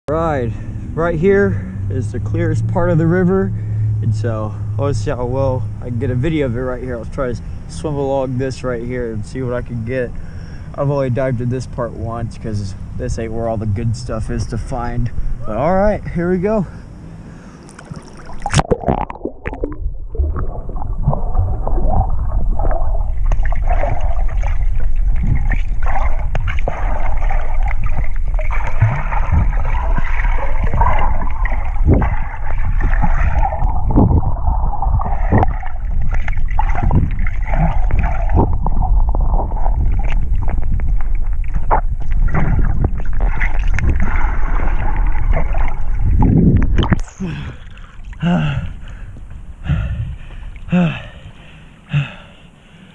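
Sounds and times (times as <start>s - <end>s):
underwater moving water rumble: 17.0s - 51.6s
underwater swimming strokes knocking: 17.7s - 47.0s.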